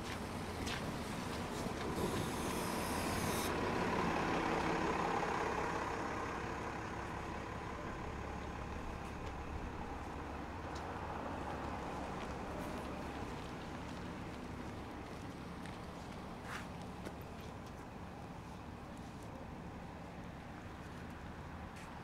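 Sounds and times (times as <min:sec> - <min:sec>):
bus driving past: 0:00.0 - 0:22.0
air brake hiss: 0:02.0 - 0:03.6.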